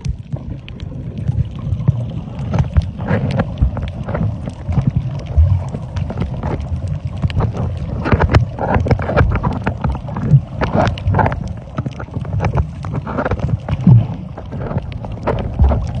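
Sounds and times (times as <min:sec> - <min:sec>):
muffled underwater water rushing: 0:00.0 - 0:16.0
sharp underwater clicks: 0:00.0 - 0:16.0.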